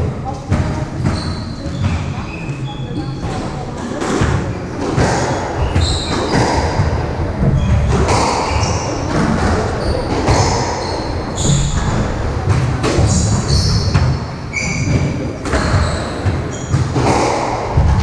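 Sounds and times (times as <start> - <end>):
shoes squeaking on wooden floor: 0.9 - 3.2, 5.6 - 6.7, 13.0 - 17.0
squash ball knocking off racket and walls: 3.8 - 18.0.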